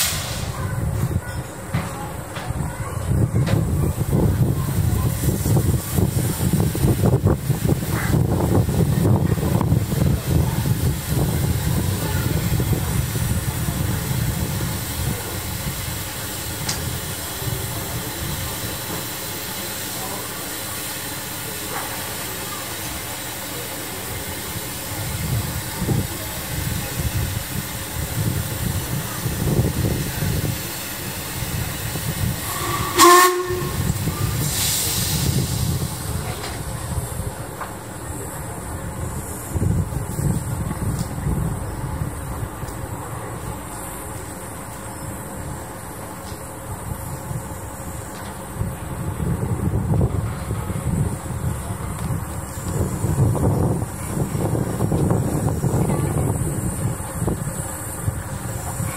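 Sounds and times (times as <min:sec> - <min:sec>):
steam hiss: 0:00.0 - 0:58.9
steam train rumbling: 0:00.0 - 0:58.9
steam whistle blast: 0:32.4 - 0:34.2.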